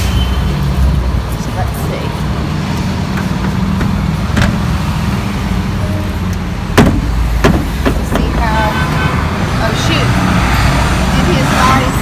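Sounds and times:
sharp knocks: 0:03.1 - 0:04.6, 0:06.8 - 0:08.5.

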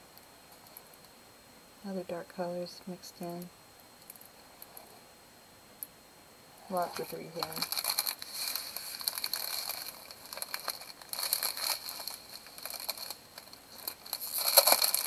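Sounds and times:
plastic packaging crinkling: 0:06.7 - 0:15.0.

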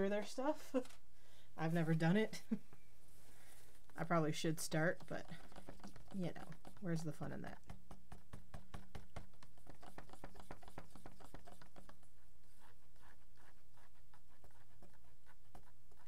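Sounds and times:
stick scraping plastic cup: 0:04.7 - 0:07.4, 0:09.0 - 0:12.8.

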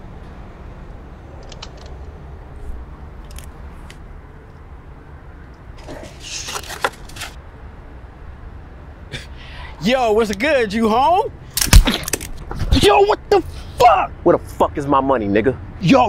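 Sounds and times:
low city rumble: 0:00.0 - 0:16.0
rustling handling noises: 0:05.8 - 0:07.4.

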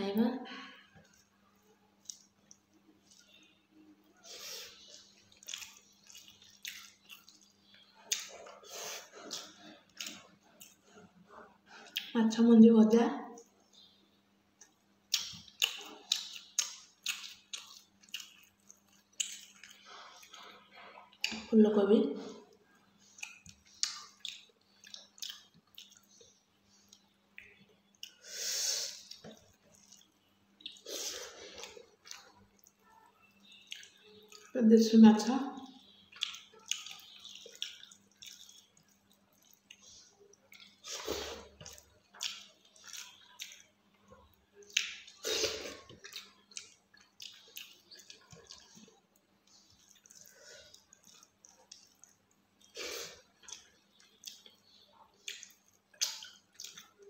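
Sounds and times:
mouth clicks of chewing: 0:02.0 - 0:03.4, 0:14.6 - 0:20.4, 0:31.6 - 0:34.5, 0:36.1 - 0:57.0.

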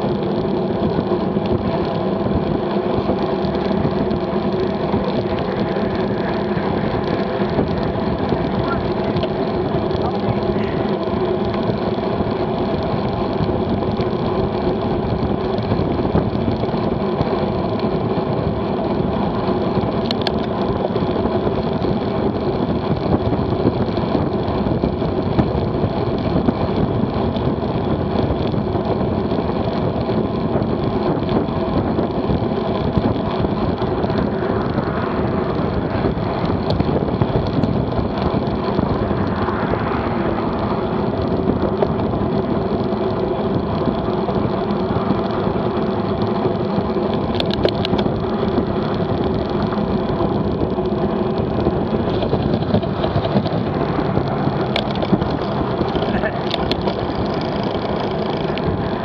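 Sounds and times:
tyre and road hum: 0:00.0 - 0:59.0
wind rush over microphone: 0:00.0 - 0:59.0
car passing: 0:34.0 - 0:36.5, 0:38.8 - 0:42.2.

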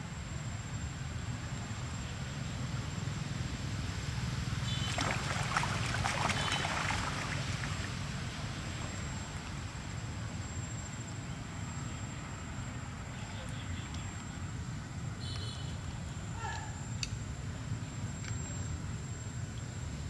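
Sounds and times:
monkeys splashing in water: 0:04.6 - 0:08.4.

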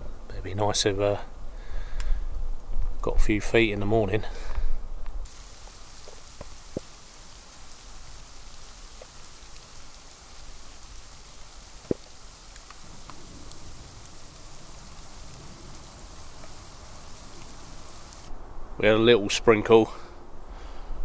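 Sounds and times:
snow falling soft hiss: 0:00.0 - 0:20.9
ticks of snowflakes landing: 0:05.3 - 0:18.3.

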